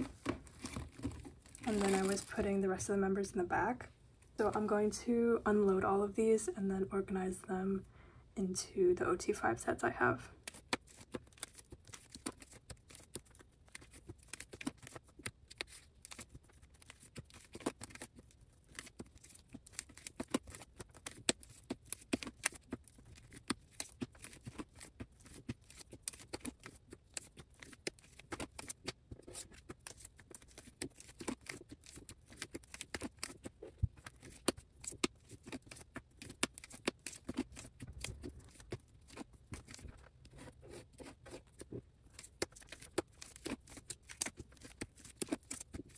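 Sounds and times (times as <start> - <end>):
plastic card sleeves clicking: 18.7 - 39.8, 42.1 - 45.9.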